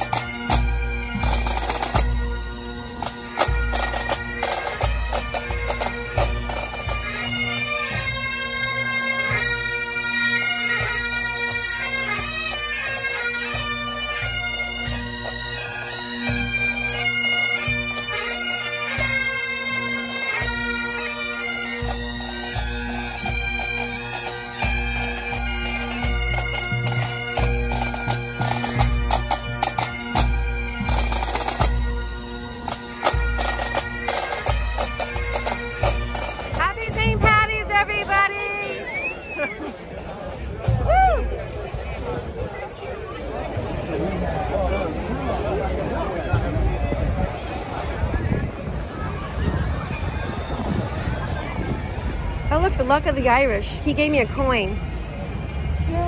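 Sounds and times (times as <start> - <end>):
band drums beating: 0.0 - 9.6, 21.8 - 42.4, 43.4 - 47.6
bagpipes playing over drone: 0.0 - 39.6, 43.3 - 56.0.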